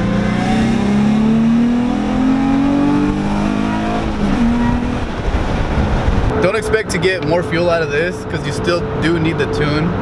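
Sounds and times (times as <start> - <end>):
car engine accelerating: 0.0 - 6.7.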